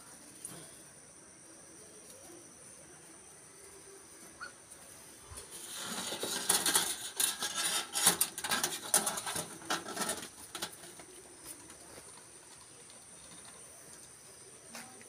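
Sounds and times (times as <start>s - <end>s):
phone scraping wire mesh: 5.5s - 10.8s.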